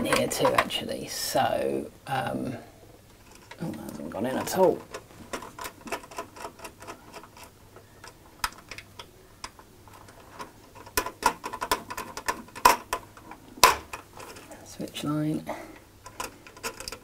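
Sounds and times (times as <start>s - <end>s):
hands clicking cables into terminals: 3.2s - 14.4s, 15.8s - 17.0s.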